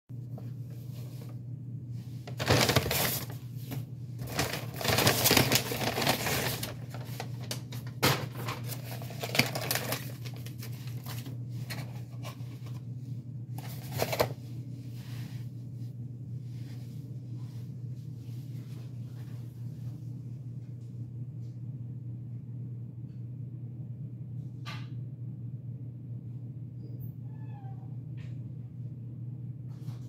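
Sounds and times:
steady low hum: 0.1s - 30.0s
paper bag rustling: 2.2s - 12.8s, 13.6s - 14.4s.

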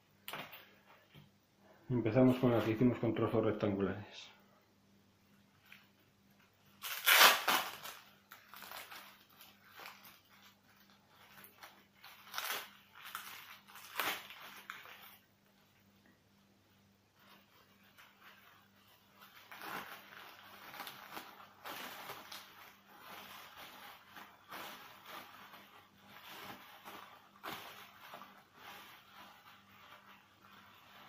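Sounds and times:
cling film crinkling: 5.6s - 15.3s, 17.2s - 31.0s.

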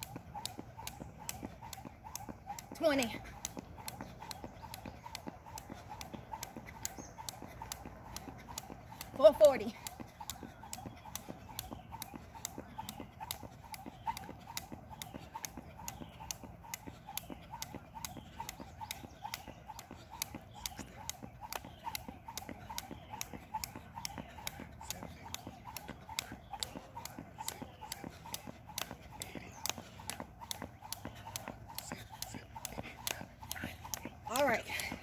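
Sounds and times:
jump rope slapping pavement: 0.0s - 35.0s.

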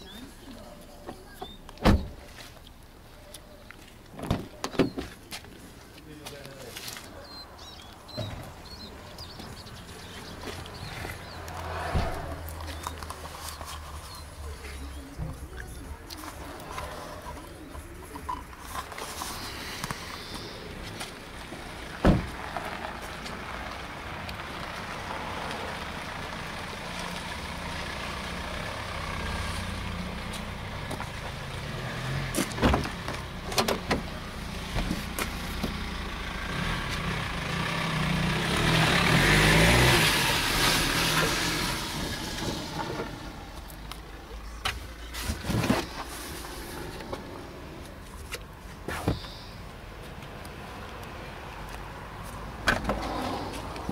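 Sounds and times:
low rumble: 11.2s - 13.0s
loud rushing: 11.4s - 12.8s.

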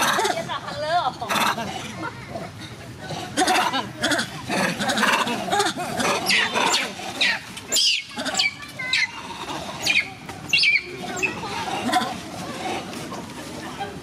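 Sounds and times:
monkeys squealing: 3.4s - 12.8s.

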